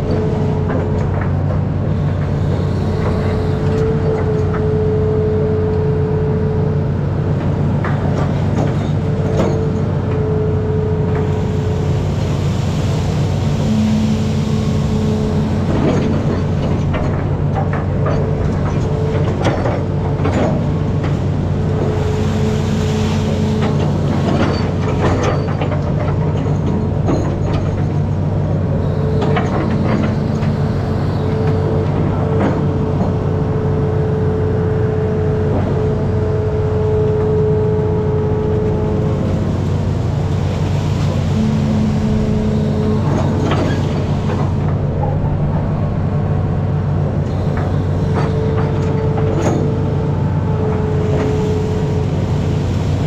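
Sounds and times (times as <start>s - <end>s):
diesel engine running: 0.0s - 53.0s
higher machine tone: 13.3s - 16.6s, 40.9s - 48.1s
knocks and clanks: 23.6s - 28.2s.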